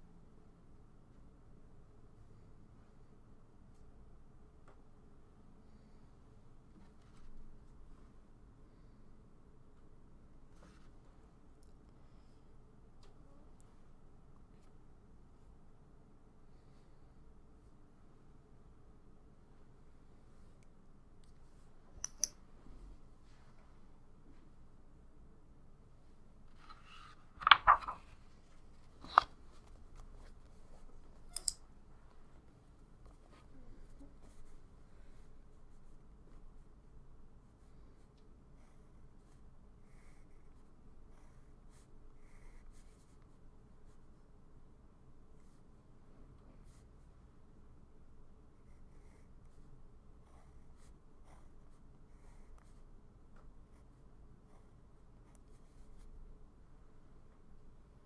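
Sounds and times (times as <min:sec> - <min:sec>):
paper page rustling: 0:26.5 - 0:30.8.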